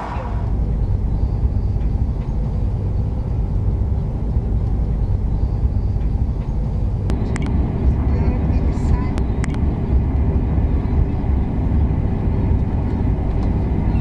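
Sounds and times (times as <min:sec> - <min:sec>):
diesel railcars rumbling: 0:00.0 - 0:14.0
sharp clicks: 0:07.1 - 0:07.6, 0:09.1 - 0:09.7.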